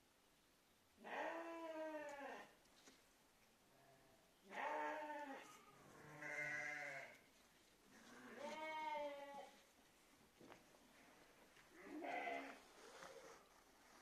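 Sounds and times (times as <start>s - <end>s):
sheep bleating: 4.5s - 7.2s, 8.0s - 9.6s, 11.8s - 12.6s.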